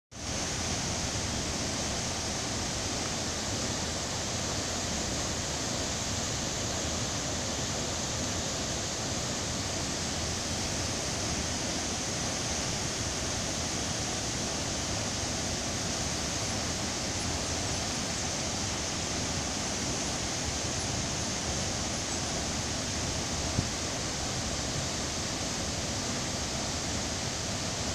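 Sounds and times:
waterfall rushing: 0.2s - 27.9s.

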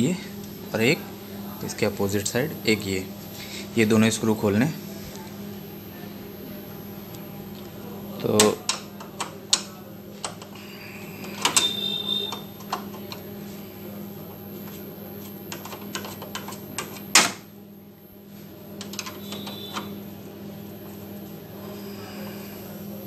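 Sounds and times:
low steady hum: 0.0s - 23.0s
screwdriver clicking and scraping: 14.7s - 17.3s.

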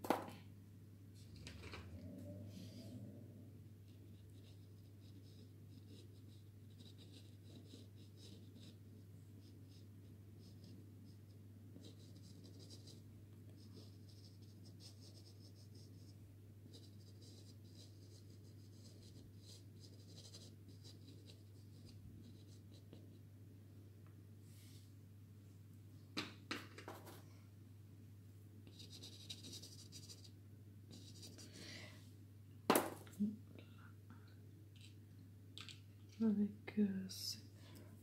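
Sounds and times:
steady low hum: 0.0s - 26.2s.

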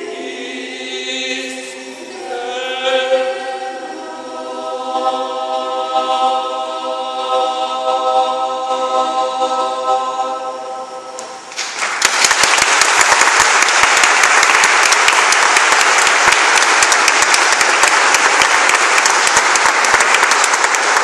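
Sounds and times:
choir holding a chord: 0.0s - 11.6s
audience applause: 11.5s - 21.0s.

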